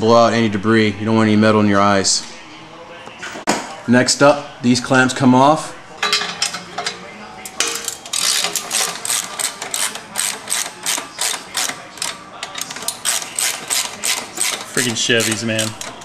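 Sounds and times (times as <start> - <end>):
socket ratchet clicking: 8.1 - 16.0.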